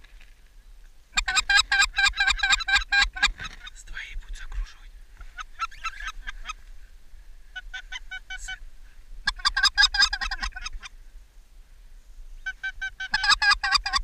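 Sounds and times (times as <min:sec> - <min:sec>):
goose call honking: 0:01.2 - 0:03.8, 0:05.2 - 0:06.6, 0:07.5 - 0:08.6, 0:09.3 - 0:10.9, 0:12.4 - 0:14.0.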